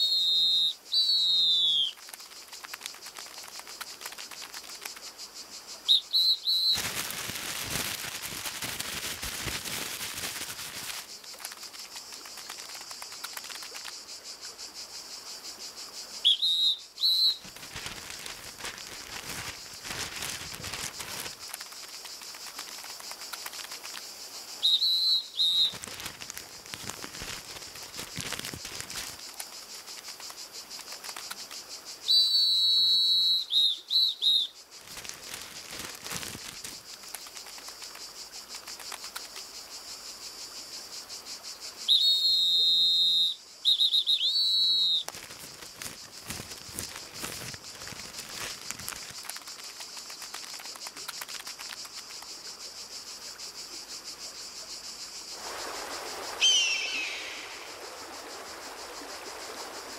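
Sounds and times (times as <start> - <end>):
high whistled cartoon calls: 0.0 - 2.0, 5.9 - 6.8, 16.2 - 17.4, 24.6 - 25.8, 32.1 - 34.5, 41.9 - 45.1, 56.4 - 57.7
high insect drone: 0.0 - 59.9.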